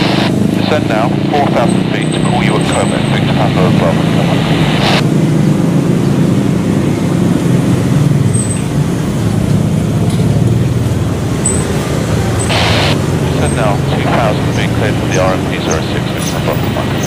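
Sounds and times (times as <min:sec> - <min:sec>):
clipped radio voice: 0:00.0 - 0:05.0, 0:12.5 - 0:17.0
low engine rumble: 0:00.0 - 0:17.0.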